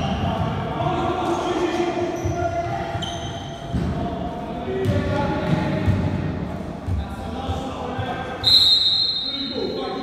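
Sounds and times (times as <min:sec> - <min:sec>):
sneakers squeaking on court: 0:02.1 - 0:04.2.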